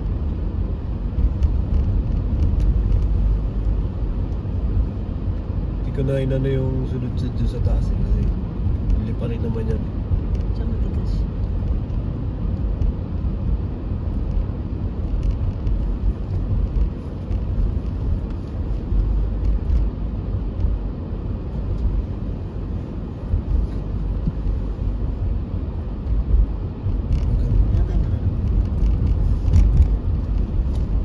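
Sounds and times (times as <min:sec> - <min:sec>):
car engine rumble: 0:00.0 - 0:31.0
tyres on wet road: 0:00.0 - 0:31.0.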